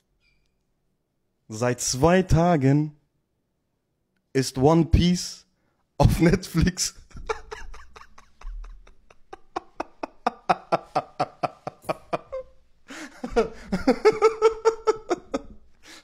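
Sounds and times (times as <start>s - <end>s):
man laughing hard: 7.0s - 16.0s.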